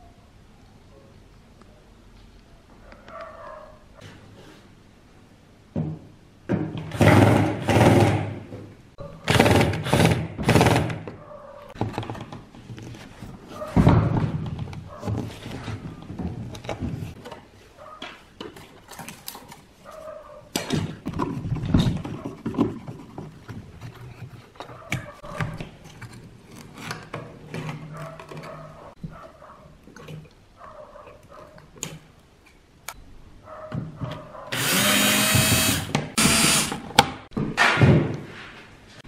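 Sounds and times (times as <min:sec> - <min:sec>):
cordless drill running: 0:34.5 - 0:36.8.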